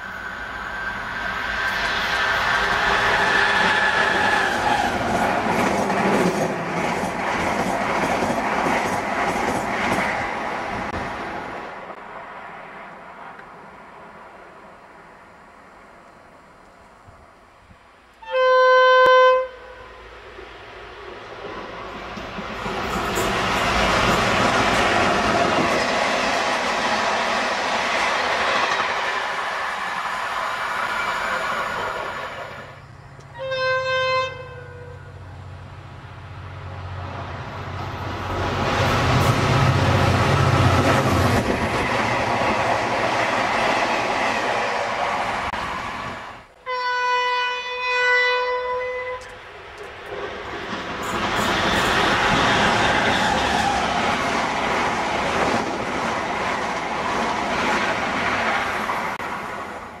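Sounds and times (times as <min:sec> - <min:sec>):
passing train rolling: 0:00.0 - 1:00.0
locomotive horn blast: 0:18.2 - 0:20.1, 0:33.3 - 0:35.3, 0:46.6 - 0:49.4.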